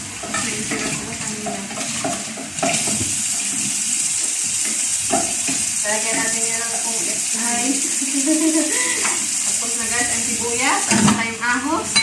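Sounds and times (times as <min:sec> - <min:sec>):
tap running into metal sink: 0:00.2 - 0:06.3.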